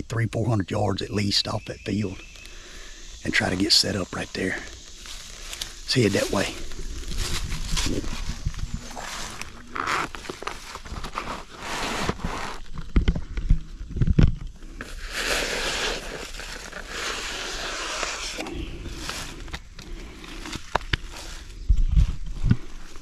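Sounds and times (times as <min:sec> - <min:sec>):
brushing through vegetation: 0:04.4 - 0:12.8, 0:14.8 - 0:23.0
twigs cracking underfoot: 0:04.7 - 0:15.6, 0:18.4 - 0:23.0
footsteps through dry leaves: 0:04.9 - 0:12.0.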